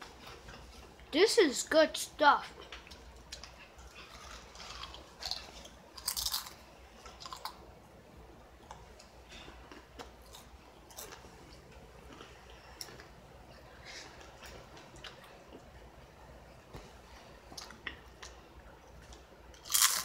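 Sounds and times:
potato chips being chewed: 2.6s - 7.6s, 8.7s - 13.1s, 19.0s - 20.0s.

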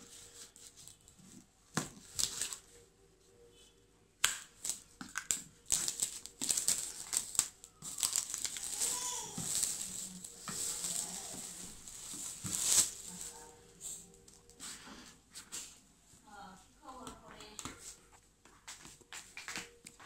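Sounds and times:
cardboard box crinkling: 5.6s - 14.6s.

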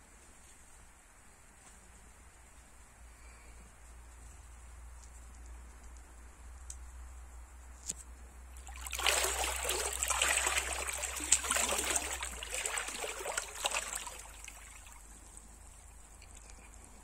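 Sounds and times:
river water splashing and trickling: 8.5s - 17.0s.

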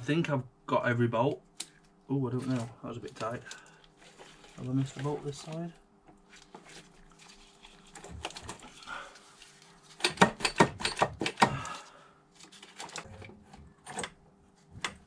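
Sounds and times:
metallic clicks of hand tools: 10.0s - 11.5s.

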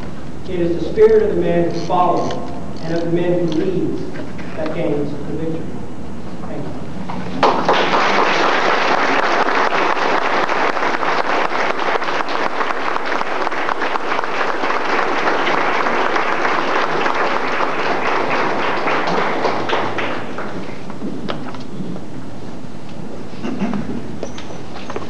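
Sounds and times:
audience applauding: 7.3s - 20.9s.

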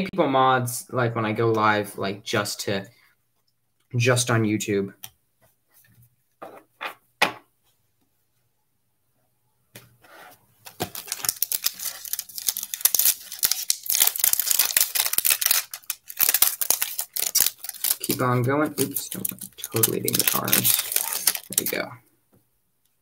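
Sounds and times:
wrapper tearing and crinkling: 10.6s - 21.9s
dense crackle: 10.8s - 22.0s.

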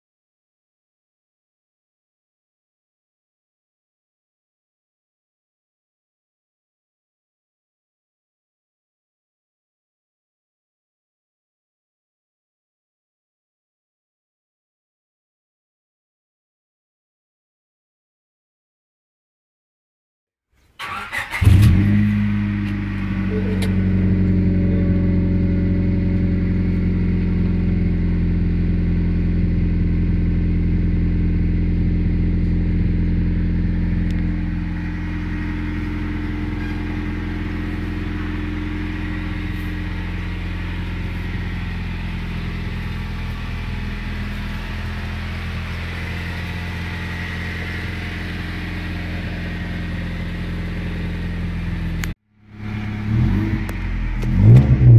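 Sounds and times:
car engine starting and idling: 20.8s - 54.9s.

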